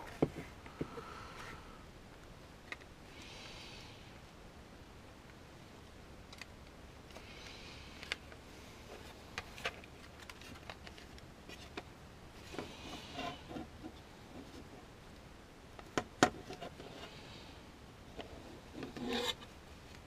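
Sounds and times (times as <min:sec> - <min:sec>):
plastic rustling: 0:08.9 - 0:11.8.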